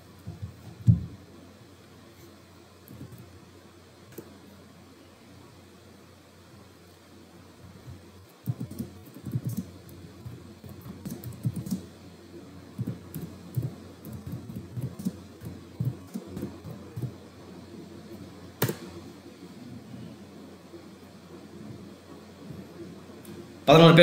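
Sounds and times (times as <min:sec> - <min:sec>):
typing on computer keyboard: 0:08.4 - 0:09.7, 0:10.6 - 0:11.8.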